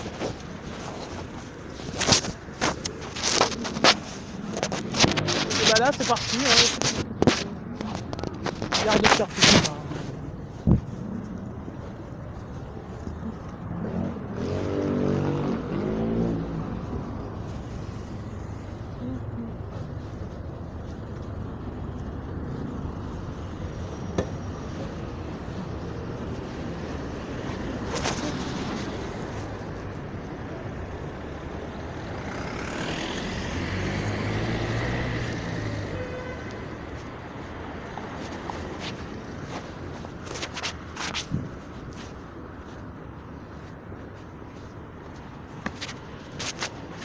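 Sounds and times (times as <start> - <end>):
engine and traffic noise: 0.0 - 47.0
vehicle engine accelerating: 13.3 - 19.4, 32.0 - 36.0.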